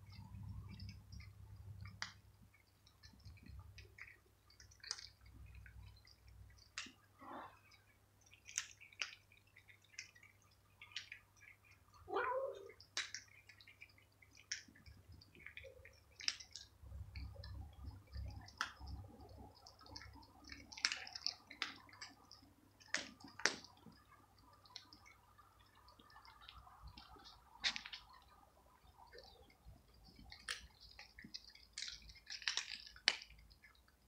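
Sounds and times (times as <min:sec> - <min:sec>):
cats crunching dry kibble: 0:00.0 - 0:34.0
cat meowing: 0:12.1 - 0:12.7.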